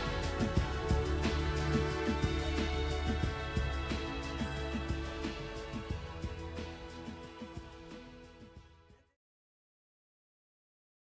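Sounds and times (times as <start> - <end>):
music with sustained tones: 0.0 - 8.6
low thumping beat: 0.0 - 8.8.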